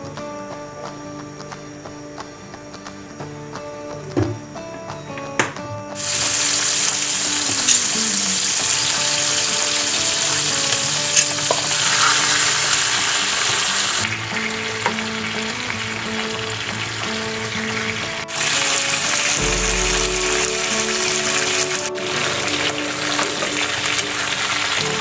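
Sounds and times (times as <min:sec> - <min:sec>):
chicken sizzling in hot oil: 0:06.0 - 0:25.0.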